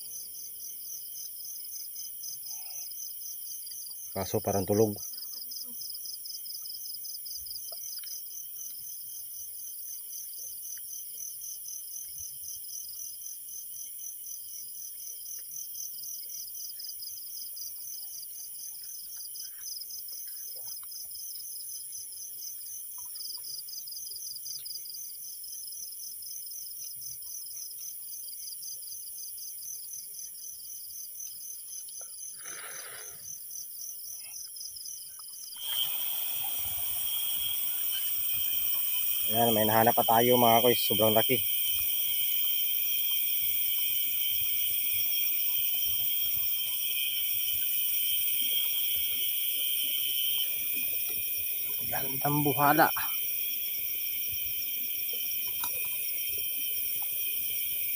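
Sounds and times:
crickets chirping: 0:00.0 - 0:57.9
steady high hiss: 0:35.6 - 0:57.9.

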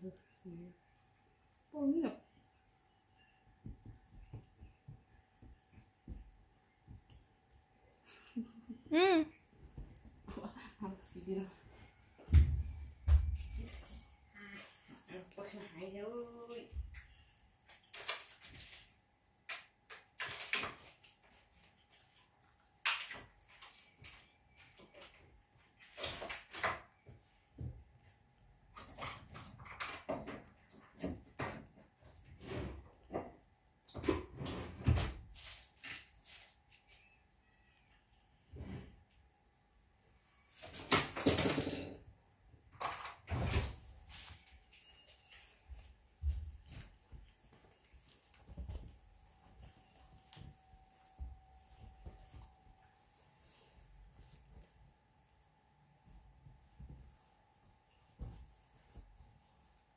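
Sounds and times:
bedding rustling and scuffing: 0:43.7 - 0:55.4, 0:56.0 - 0:59.9.

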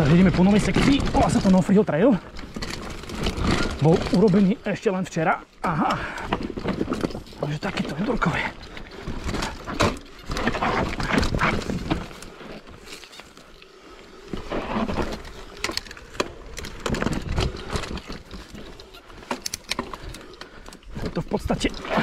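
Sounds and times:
bike clattering over rocks: 0:00.0 - 0:13.5
bike tyres rumbling on dirt: 0:00.0 - 0:22.0.

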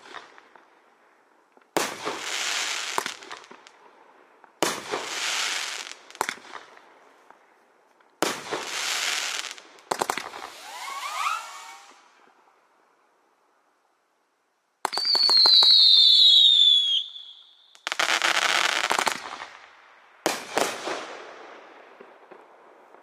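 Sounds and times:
firework crackling: 0:01.7 - 0:03.8, 0:04.6 - 0:06.8, 0:08.2 - 0:12.2, 0:14.9 - 0:22.0
firework bangs: 0:04.6 - 0:06.8, 0:08.2 - 0:12.1
firework screaming whistle: 0:10.4 - 0:12.2, 0:14.9 - 0:18.9.

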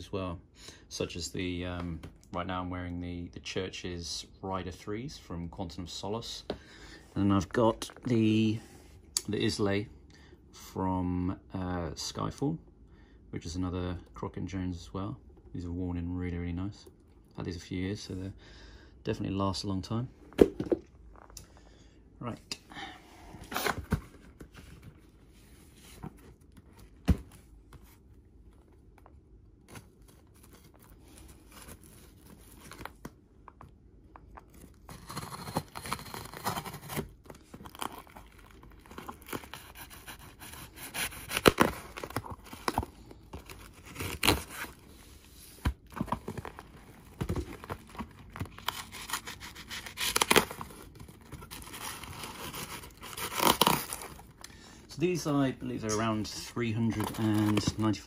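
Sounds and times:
knife cutting packing tape: 0:34.9 - 0:37.0, 0:39.0 - 0:42.8, 0:48.5 - 0:50.8, 0:51.5 - 0:54.1
tape ripping: 0:34.9 - 0:42.8, 0:47.3 - 0:54.3.

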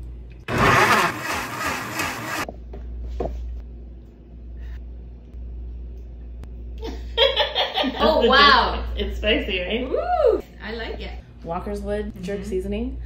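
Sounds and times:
blender running: 0:00.5 - 0:02.5.

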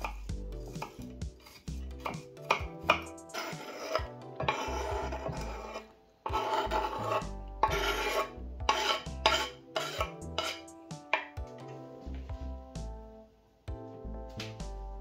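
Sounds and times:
food rasping on a grater: 0:02.5 - 0:10.6.

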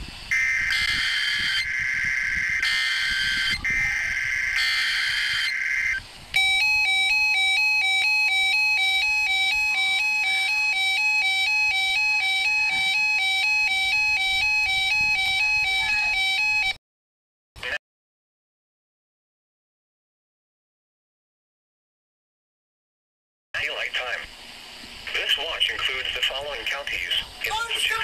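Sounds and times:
alternating electronic alert tone: 0:00.3 - 0:16.8.

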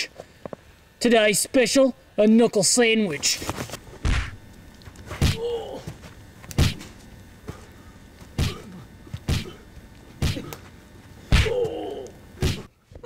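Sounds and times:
punches thudding: 0:04.0 - 0:04.4, 0:05.1 - 0:05.5, 0:06.6 - 0:06.9, 0:08.4 - 0:09.6, 0:10.2 - 0:10.5, 0:11.3 - 0:11.8
man grunting: 0:05.2 - 0:05.9, 0:11.3 - 0:12.7.

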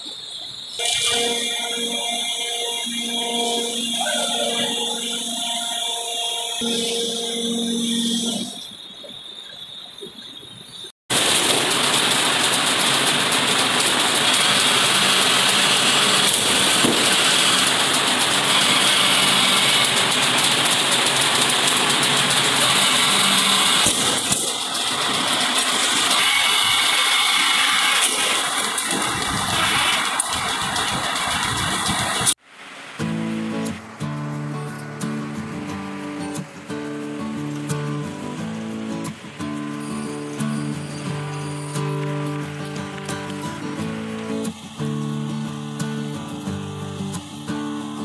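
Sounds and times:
woodworking machinery whirring: 0:00.8 - 0:08.6, 0:11.1 - 0:32.4.

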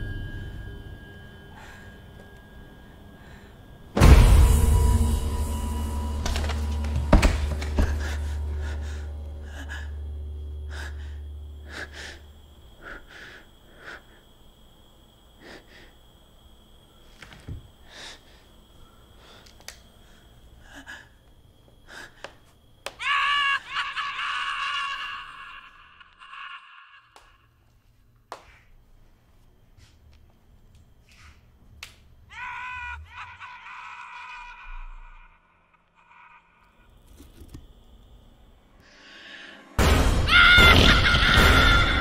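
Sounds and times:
low music drone: 0:00.0 - 0:12.4
loud scream: 0:23.0 - 0:27.4, 0:32.3 - 0:36.8, 0:40.2 - 0:42.0.

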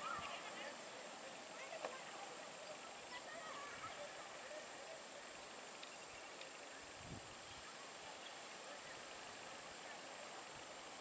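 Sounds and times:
faint chirps: 0:00.0 - 0:10.4.

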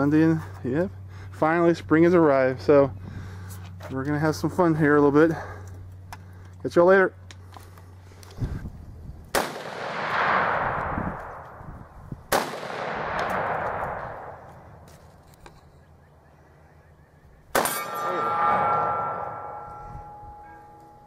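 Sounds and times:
rifle shots with rolling echo: 0:09.3 - 0:14.9, 0:17.5 - 0:19.2.

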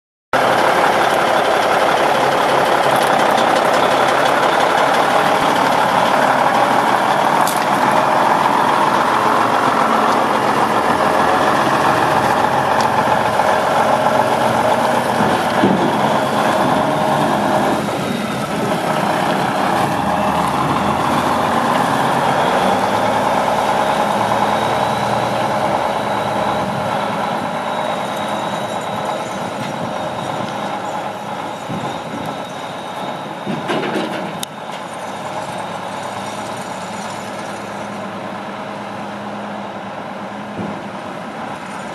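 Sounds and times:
truck diesel engine running: 0:00.4 - 0:41.9.

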